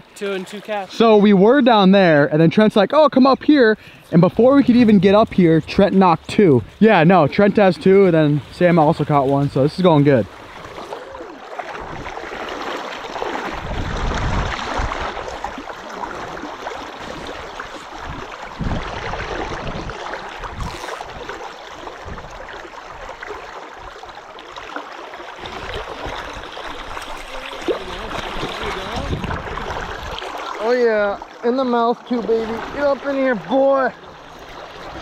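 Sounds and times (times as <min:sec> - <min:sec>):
river current rushing: 0:00.0 - 0:35.0
low rumbles on microphone: 0:27.7 - 0:30.2.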